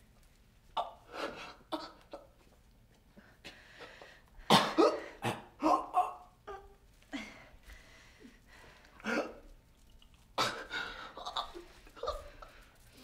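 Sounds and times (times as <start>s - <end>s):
man gasping and choking: 10.4s - 12.2s.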